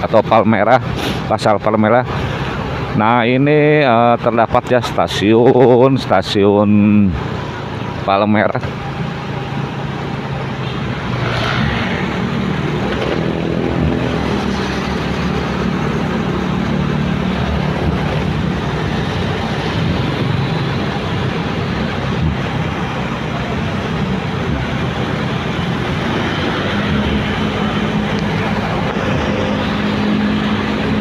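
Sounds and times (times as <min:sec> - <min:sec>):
passing traffic: 0:00.0 - 0:31.0
road noise: 0:00.0 - 0:31.0
motorcycle engine running: 0:08.7 - 0:31.0.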